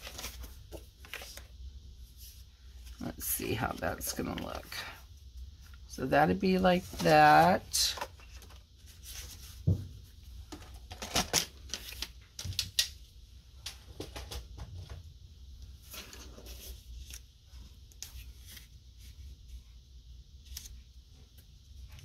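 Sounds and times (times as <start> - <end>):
paper rustling and sliding: 0.0 - 1.5, 6.7 - 9.7, 15.8 - 19.2.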